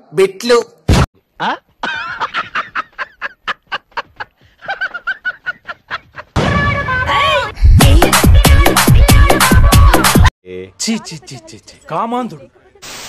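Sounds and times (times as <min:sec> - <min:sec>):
man laughing hard: 0:01.8 - 0:06.4
loud music: 0:07.7 - 0:10.3.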